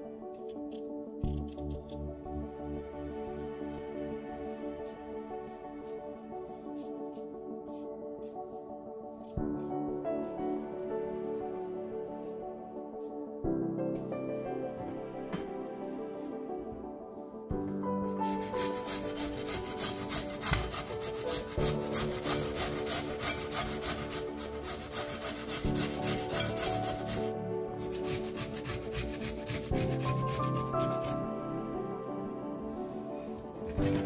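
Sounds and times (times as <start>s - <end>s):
potato rasping on metal grater: 18.2s - 31.2s, 33.7s - 34.0s.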